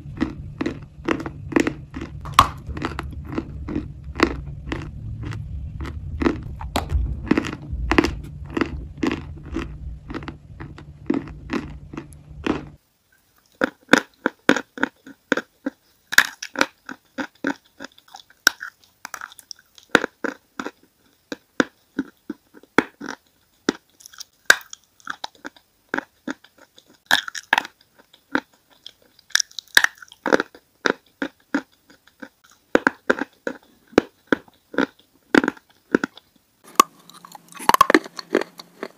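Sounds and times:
crunching and chewing chalk: 0.0s - 12.8s, 13.4s - 38.9s
steady low hum: 0.0s - 12.9s.

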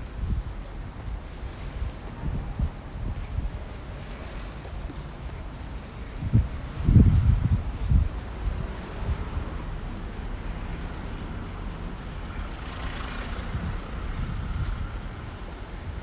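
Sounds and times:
low traffic rumble: 0.0s - 16.0s
vehicle passing: 8.5s - 15.4s.

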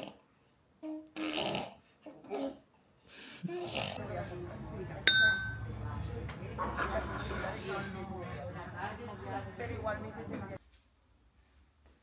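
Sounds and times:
nasal snuffles: 1.2s - 1.8s.

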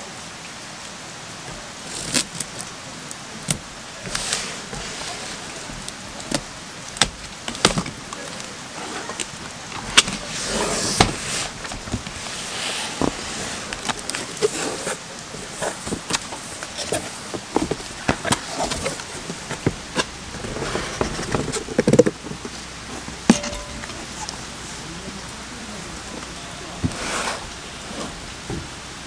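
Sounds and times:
plastic wrap crinkling: 1.5s - 10.3s.

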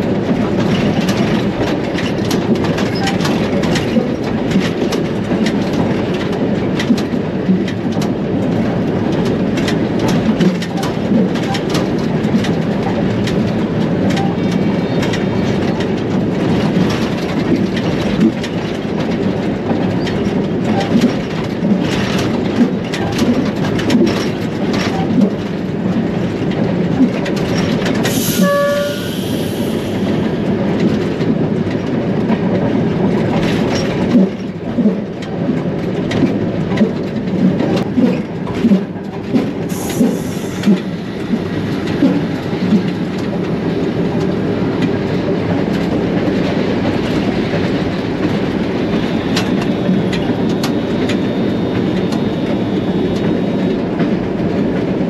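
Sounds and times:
wheels clicking over rail joints: 0.2s - 52.4s
train horn: 28.1s - 29.8s
locomotive engine drone: 37.5s - 55.0s.

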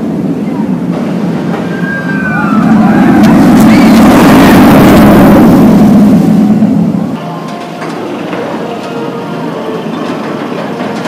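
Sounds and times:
roller coaster rushing past: 0.2s - 8.7s
high gliding tones: 1.4s - 10.0s.

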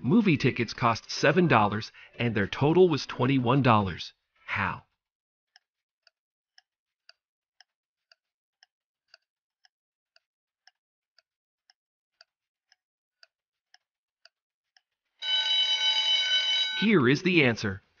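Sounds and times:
clock ticking: 16.6s - 17.8s.

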